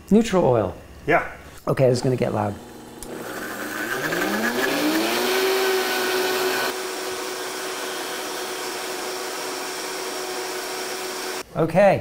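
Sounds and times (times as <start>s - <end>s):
blender motor whine: 2.3s - 11.4s.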